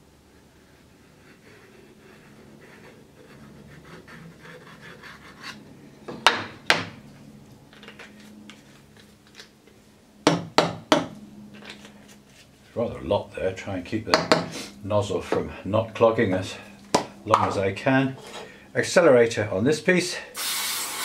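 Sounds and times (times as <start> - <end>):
wooden knocks on bench: 14.2 - 14.5.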